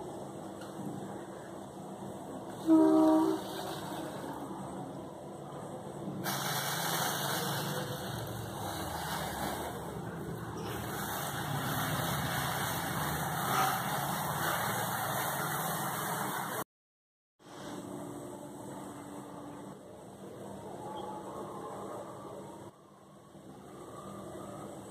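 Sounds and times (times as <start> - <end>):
gas burner hissing: 0.0 - 16.6.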